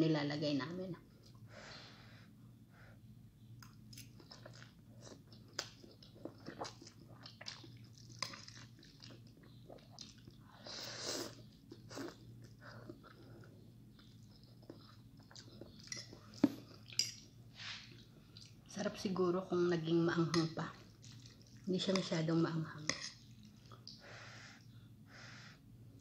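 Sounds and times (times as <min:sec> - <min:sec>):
chewing: 0:03.6 - 0:18.7, 0:20.7 - 0:22.1, 0:22.9 - 0:24.0.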